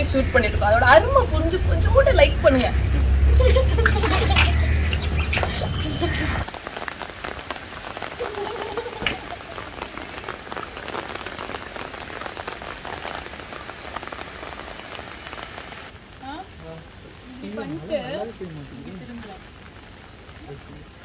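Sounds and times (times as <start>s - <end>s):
water drops pattering on concrete: 2.0s - 15.5s.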